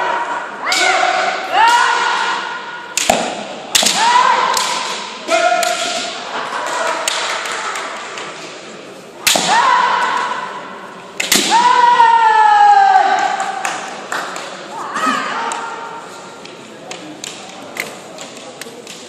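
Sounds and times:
bamboo sword strikes cracking: 0:03.0 - 0:05.0, 0:09.3 - 0:09.6, 0:11.2 - 0:11.7.

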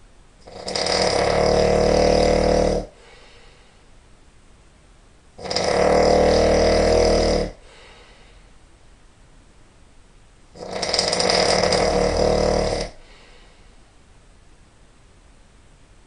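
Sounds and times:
man snoring loudly: 0:00.4 - 0:03.2, 0:05.4 - 0:07.8, 0:10.6 - 0:13.1.

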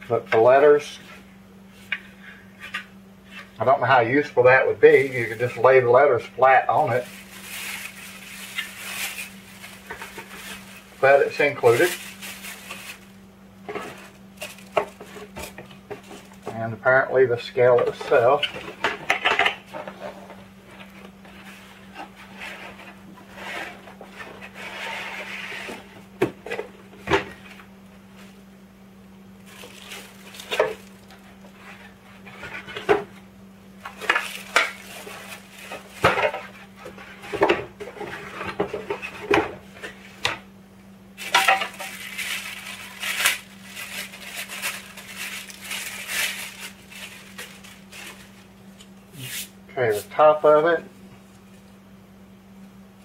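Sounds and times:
faint steady hum: 0:00.0 - 0:53.0
packaging scraping and crinkling: 0:04.8 - 0:05.8, 0:06.6 - 0:16.4, 0:29.4 - 0:33.2, 0:33.8 - 0:39.3, 0:41.2 - 0:48.6.

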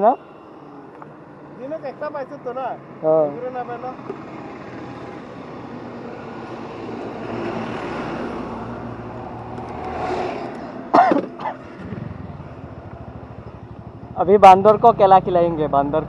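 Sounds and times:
motor vehicle engine running: 0:11.3 - 0:16.0.

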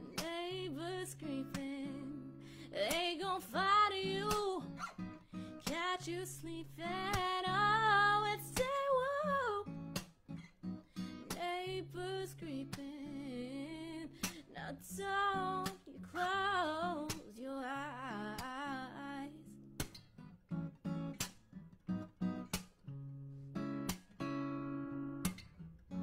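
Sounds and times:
woman singing: 0:00.0 - 0:09.8, 0:11.0 - 0:19.6
acoustic guitar strumming: 0:19.8 - 0:26.0.

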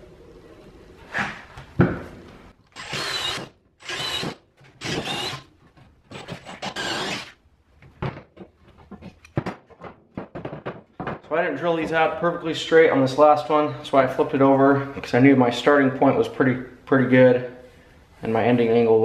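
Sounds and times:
cordless drill boring wood: 0:02.7 - 0:05.5, 0:06.1 - 0:07.4
knocks: 0:08.0 - 0:11.3.

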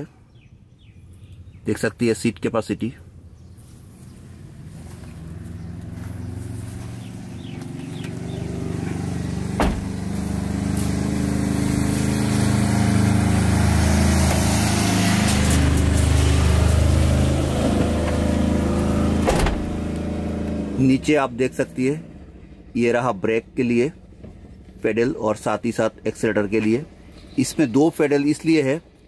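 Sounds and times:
motor vehicle engine running: 0:03.0 - 0:29.0
sharp knock: 0:09.6 - 0:10.0.

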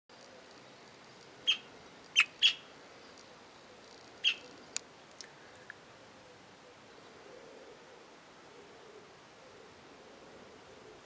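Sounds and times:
budgerigars chirping: 0:01.5 - 0:02.6, 0:04.2 - 0:04.5
faint ticks: 0:03.1 - 0:05.8.

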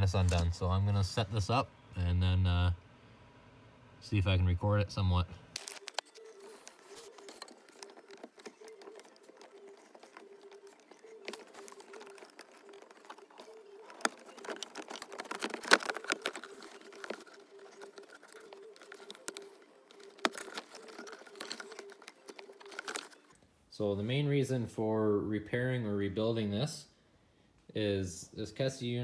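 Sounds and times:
plastic clicks scrapes and rattles: 0:05.6 - 0:23.4.

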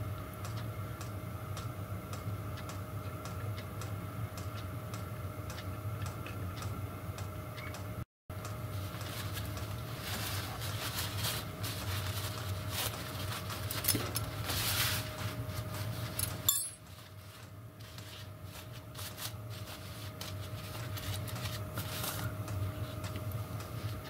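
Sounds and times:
steady low hum: 0:00.0 - 0:24.0
paper towel rustling: 0:08.7 - 0:16.2, 0:16.9 - 0:23.0
metal parts clinking: 0:16.2 - 0:16.8.

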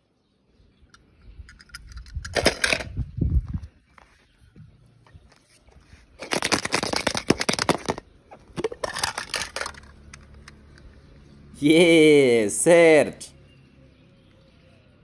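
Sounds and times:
plastic eggs clattering and clicking: 0:00.9 - 0:03.6, 0:06.1 - 0:11.0.

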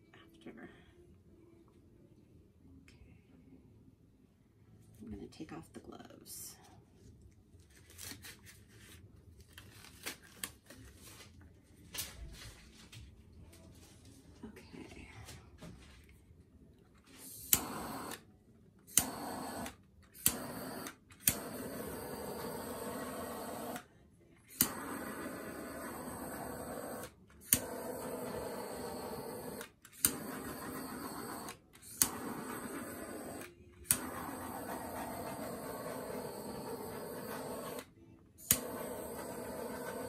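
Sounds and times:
torch flame hissing: 0:17.2 - 0:18.2, 0:18.9 - 0:23.9, 0:24.5 - 0:40.0
torch ignition click: 0:17.2 - 0:18.2, 0:18.9 - 0:23.9, 0:24.5 - 0:40.0.

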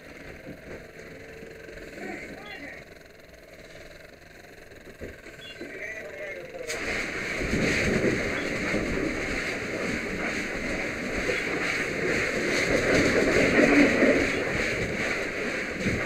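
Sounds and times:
fire hose water spraying: 0:06.6 - 0:16.0.

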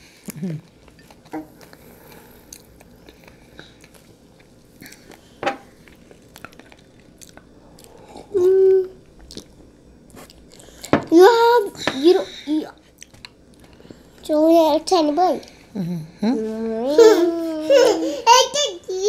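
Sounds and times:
soft chewing with mouth clicks: 0:00.1 - 0:10.9, 0:12.7 - 0:14.2
person humming: 0:08.2 - 0:09.0, 0:15.7 - 0:18.0.

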